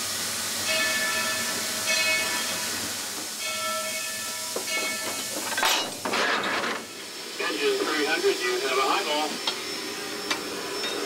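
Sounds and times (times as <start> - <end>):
steam hissing: 0.0 - 11.0
locomotive bell ringing: 0.6 - 6.3.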